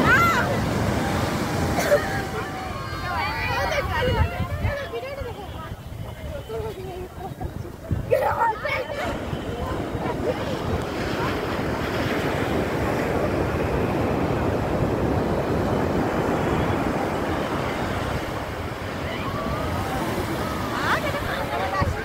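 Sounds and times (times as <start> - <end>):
faint voices: 0.0 - 22.0
ocean waves breaking: 0.0 - 22.0
wind buffeting microphone: 0.0 - 22.0.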